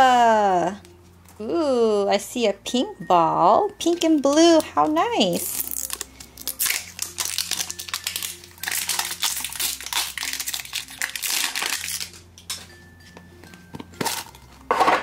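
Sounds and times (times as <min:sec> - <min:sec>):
plastic wrapper crinkling: 0:04.1 - 0:12.6.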